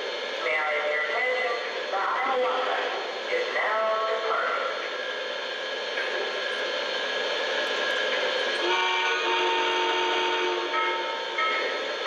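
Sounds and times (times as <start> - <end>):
steam whistle blasts: 8.6 - 11.7.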